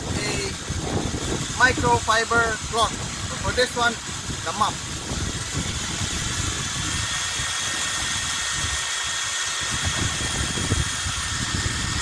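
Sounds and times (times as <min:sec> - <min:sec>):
paddle mixing liquid rumble: 0:00.0 - 0:12.0
cordless drill whining: 0:03.2 - 0:12.0.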